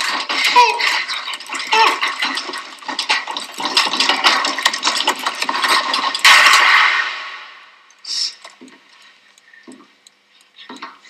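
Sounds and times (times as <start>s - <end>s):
loud ringing bang: 6.2s - 7.8s.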